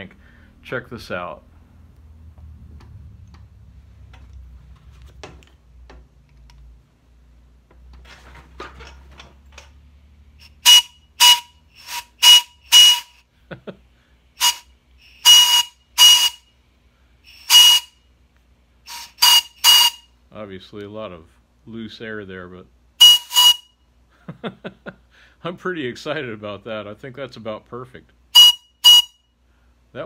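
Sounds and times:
low hum: 0:00.0 - 0:07.6.

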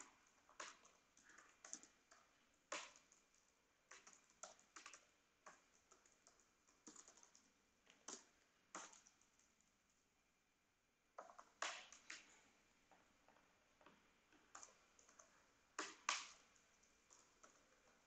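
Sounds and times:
typing on computer keyboard: 0:00.0 - 0:09.6, 0:14.4 - 0:18.0.

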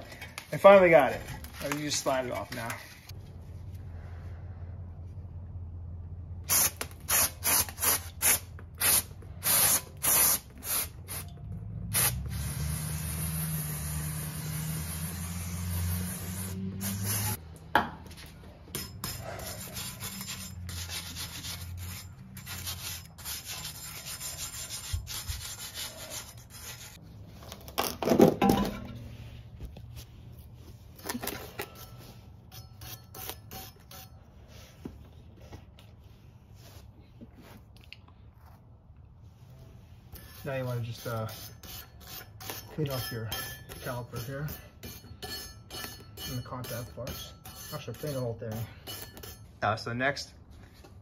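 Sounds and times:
wire brush scrubbing rust: 0:11.9 - 0:17.4, 0:18.7 - 0:27.0, 0:31.6 - 0:34.8, 0:40.0 - 0:49.8.

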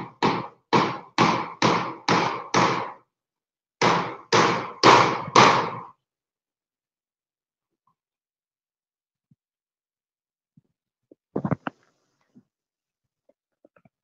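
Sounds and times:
hammer nailing metal roofing: 0:00.0 - 0:03.1, 0:03.8 - 0:06.0.

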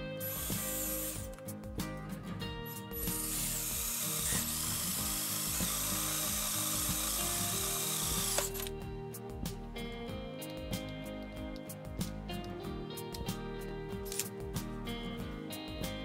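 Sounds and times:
background music: 0:00.0 - 0:16.0
cordless drill boring metal: 0:00.2 - 0:01.4, 0:02.8 - 0:08.7.

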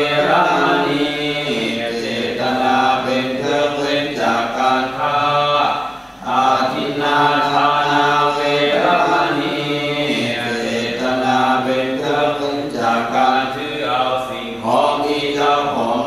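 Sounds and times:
voices chanting on long notes: 0:00.0 - 0:16.0.

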